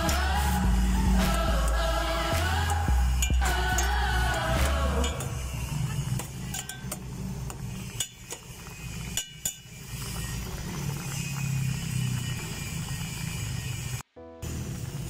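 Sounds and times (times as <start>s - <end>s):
metal spoon clinking on pot: 6.5s - 7.1s, 9.1s - 9.7s
water bubbling at the boil: 7.8s - 12.6s.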